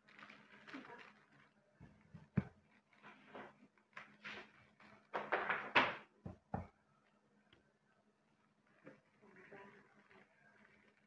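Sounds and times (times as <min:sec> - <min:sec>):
plastic bag rustling and crinkling: 0:00.0 - 0:05.8, 0:08.4 - 0:11.0.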